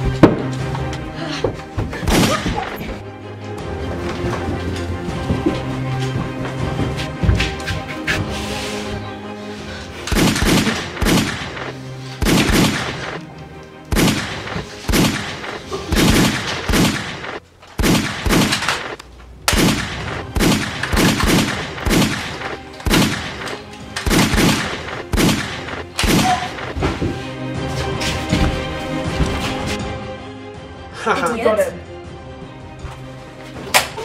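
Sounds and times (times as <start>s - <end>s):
gunshots with ringing tail: 10.1s - 13.2s, 13.9s - 26.7s.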